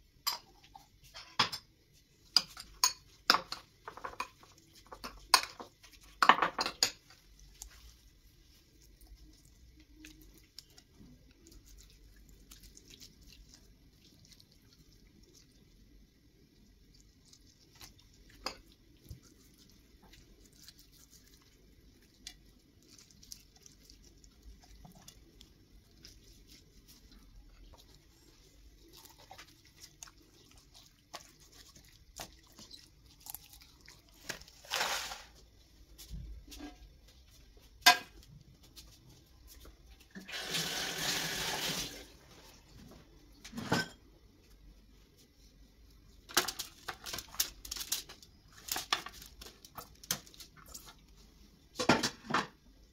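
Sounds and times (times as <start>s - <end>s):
kitchen tap running: 40.1s - 42.1s.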